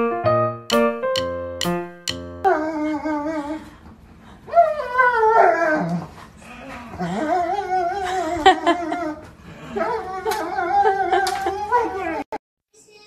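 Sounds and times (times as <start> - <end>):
dog whining and howling: 4.5 - 12.3.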